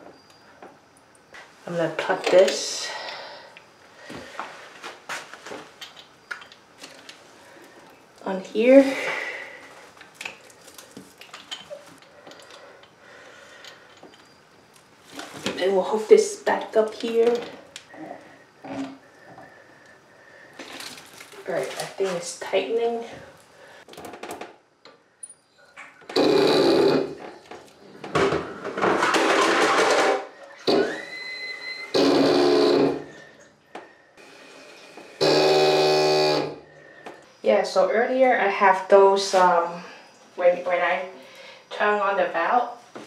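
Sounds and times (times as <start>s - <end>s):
water pipe hammering and buzzing: 26.1s - 27.3s, 31.9s - 33.2s, 34.2s - 36.7s
rising whistle: 30.4s - 32.0s.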